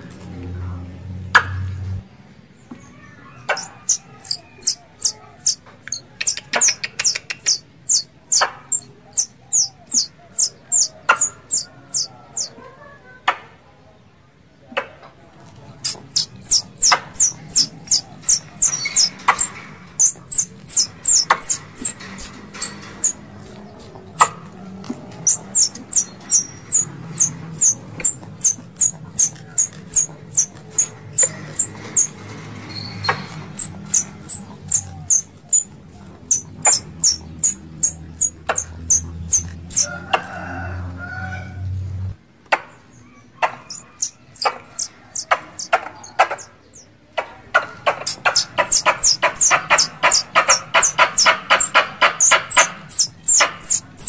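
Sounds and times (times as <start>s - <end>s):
squirrel chirping: 3.4s - 12.6s, 15.8s - 24.4s, 25.0s - 40.0s, 43.4s - 46.9s, 47.5s - 54.0s
squirrel clicks: 3.5s - 12.5s, 15.8s - 32.1s, 47.2s - 54.0s.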